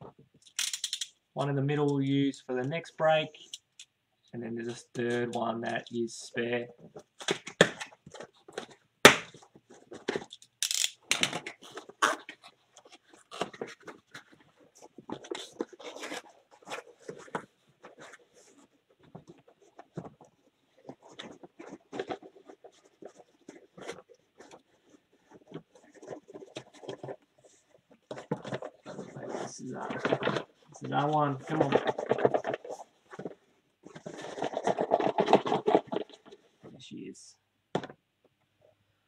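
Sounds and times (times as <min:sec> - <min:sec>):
cardboard scraping and tearing: 0:11.5 - 0:36.4.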